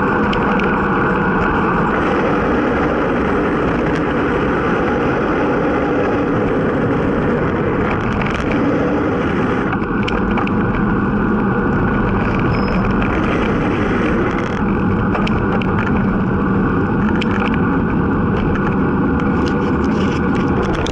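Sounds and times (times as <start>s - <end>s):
wind rushing over microphone: 0.0s - 20.9s.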